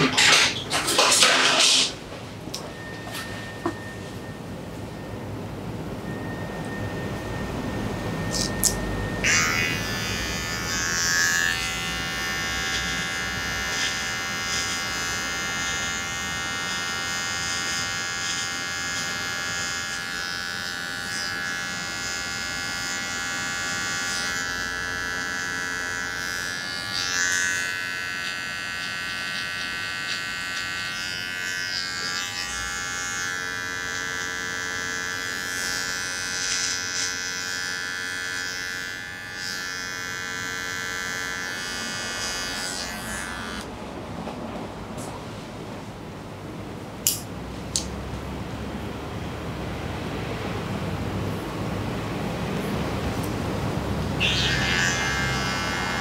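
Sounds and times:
electric hair clippers buzzing: 0:02.5 - 0:04.0, 0:08.2 - 0:43.7, 0:54.1 - 0:56.0.

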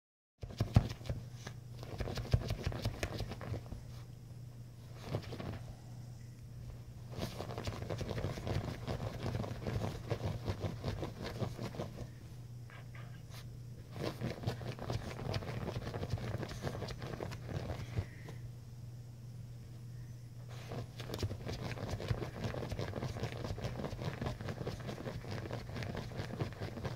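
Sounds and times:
puppy scratching bedspread: 0:00.4 - 0:04.1, 0:04.8 - 0:05.6, 0:07.0 - 0:12.1, 0:13.3 - 0:18.1, 0:20.5 - 0:26.9
steady low hum: 0:00.4 - 0:26.9.

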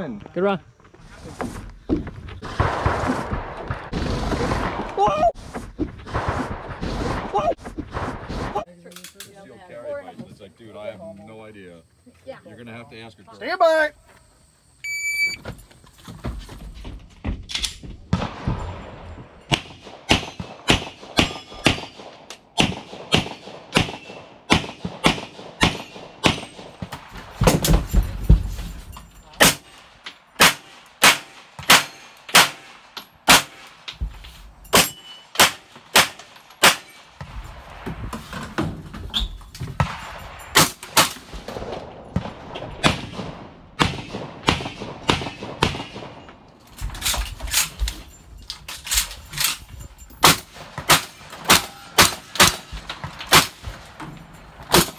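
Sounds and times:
shot timer beep: 0:14.8 - 0:15.4
pistol gunshots: 0:18.1 - 0:28.0, 0:30.4 - 0:33.9, 0:34.7 - 0:37.8, 0:39.8 - 0:46.4, 0:50.2 - 0:53.9.

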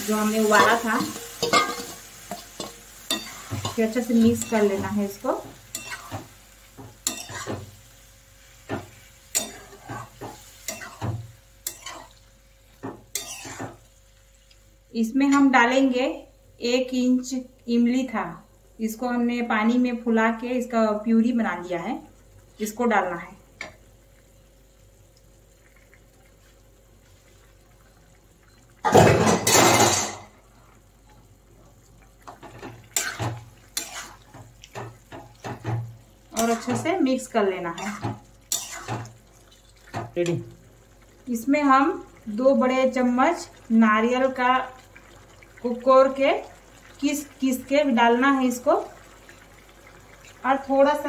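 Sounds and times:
spatula scraping and knocking pan: 0:00.5 - 0:07.8, 0:08.6 - 0:12.1, 0:12.8 - 0:13.8, 0:32.3 - 0:37.0, 0:37.8 - 0:39.2.

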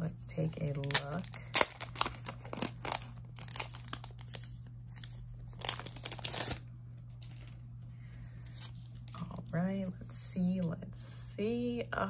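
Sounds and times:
packaging crinkling and tearing: 0:00.7 - 0:07.6.

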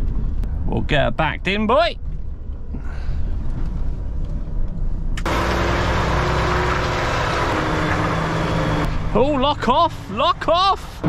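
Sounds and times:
diesel lorry engine running: 0:02.2 - 0:11.0.

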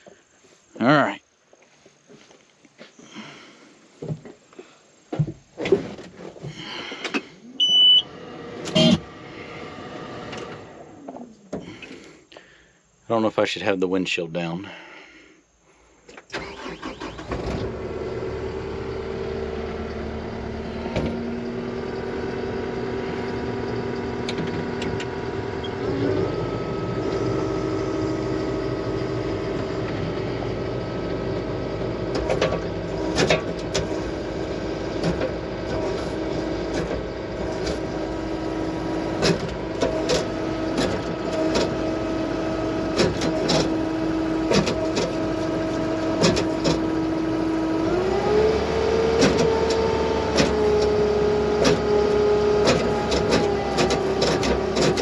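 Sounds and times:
skid steer engine running: 0:16.4 - 0:55.0
steady whine: 0:16.4 - 0:55.0.

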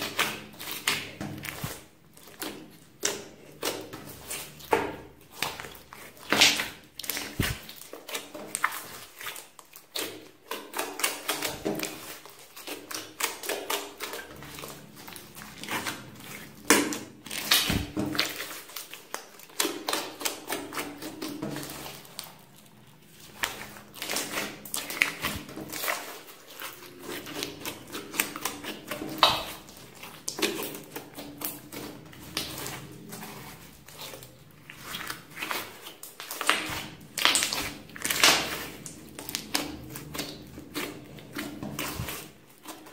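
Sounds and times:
slime squeezed by hand: 0:05.5 - 0:07.9, 0:11.0 - 0:22.3.

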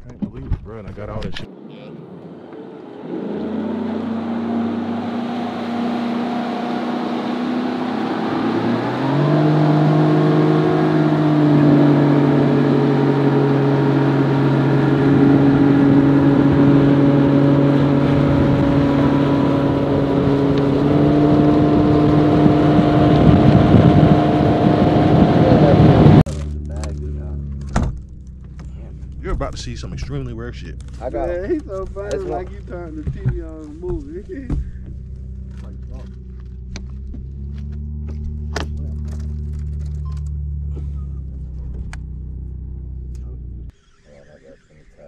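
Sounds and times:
outboard motor running: 0:09.4 - 0:33.4.

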